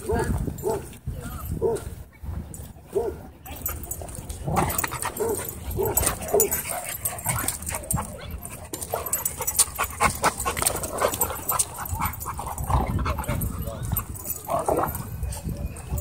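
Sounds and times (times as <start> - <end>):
dogs scuffling: 3.7 - 16.0.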